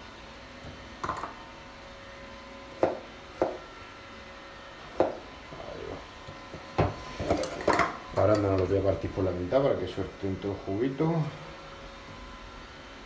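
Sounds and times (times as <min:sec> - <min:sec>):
knife knocking on cutting board: 0:02.8 - 0:03.6.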